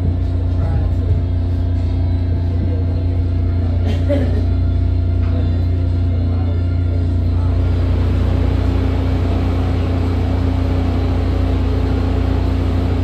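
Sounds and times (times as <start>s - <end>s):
steady humming tone: 0.0s - 13.0s
subway car hum and rumble: 0.0s - 13.0s.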